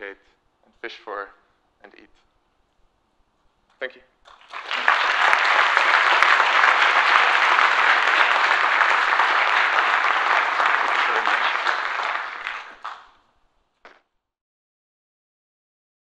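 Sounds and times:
audience applauding: 4.3 - 13.2.

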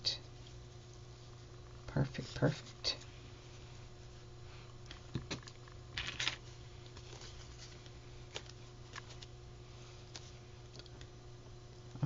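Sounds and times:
steady low hum: 0.0 - 12.0
paper rustling: 6.0 - 9.3.

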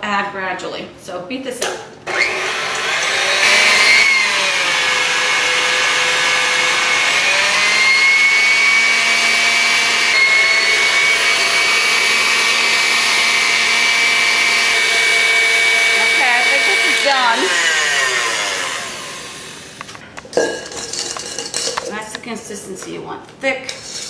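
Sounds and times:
stand mixer motor whine: 2.1 - 20.0.

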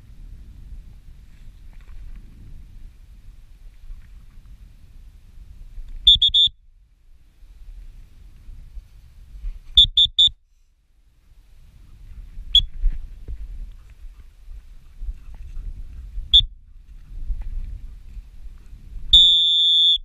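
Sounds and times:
wind rumble on microphone: 0.0 - 19.3
dog whistle pips: 6.1 - 6.6, 9.8 - 10.4, 12.5 - 12.7, 19.1 - 20.0.

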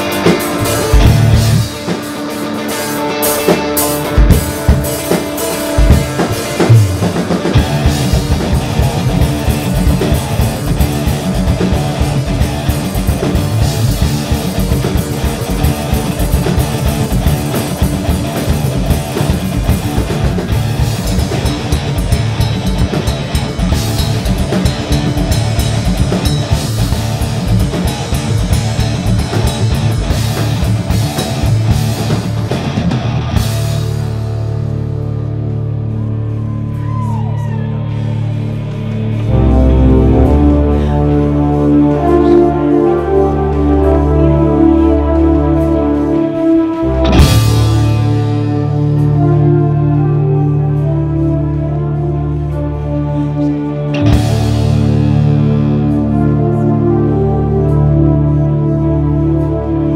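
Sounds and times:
fast dense drumming: 0.0 - 34.1
electric bass: 0.0 - 59.9.

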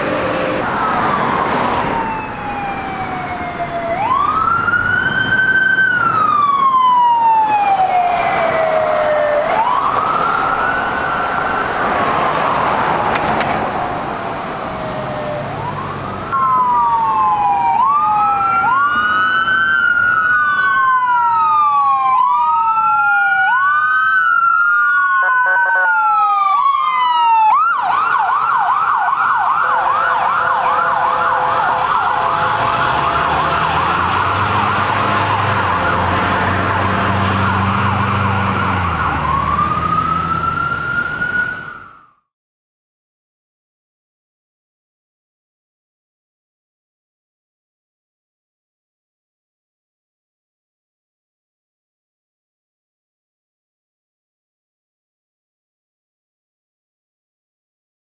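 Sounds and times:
sirens wailing: 0.0 - 42.3
siren rapid yelp: 0.4 - 12.7, 14.9 - 42.2.

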